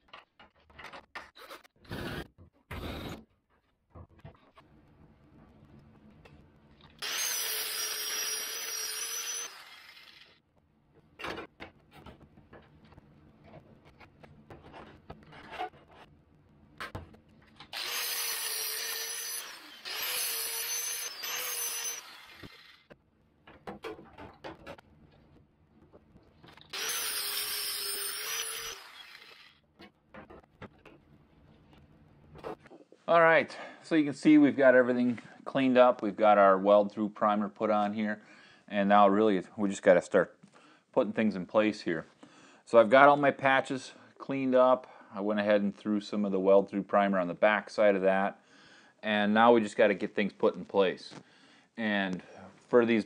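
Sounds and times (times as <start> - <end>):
cordless drill whining: 7.0 - 10.4, 17.7 - 22.9, 26.7 - 29.6.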